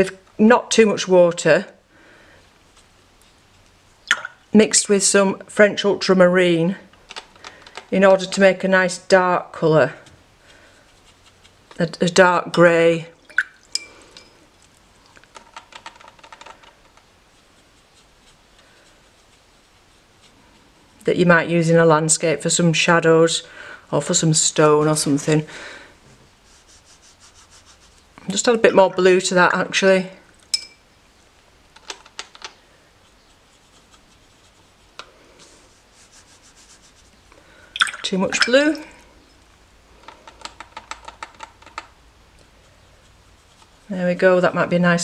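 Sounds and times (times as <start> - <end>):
brush dabbing paint: 2.4 - 4.0, 7.0 - 12.8, 15.6 - 22.4, 26.1 - 28.6, 31.1 - 37.3, 40.2 - 44.8.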